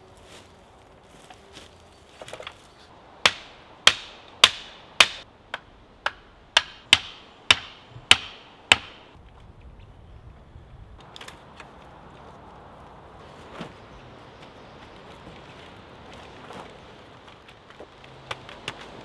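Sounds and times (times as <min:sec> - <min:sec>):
hammering on wood: 0:03.2 - 0:09.1.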